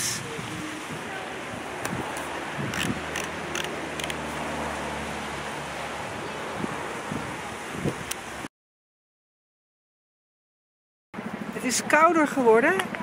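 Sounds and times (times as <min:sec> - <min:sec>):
wind buffeting microphone: 0:00.0 - 0:04.6, 0:05.9 - 0:08.5.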